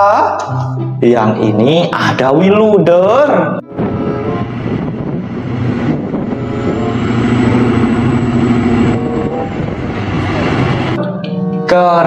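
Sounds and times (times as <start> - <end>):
diesel engine running: 3.7 - 11.0.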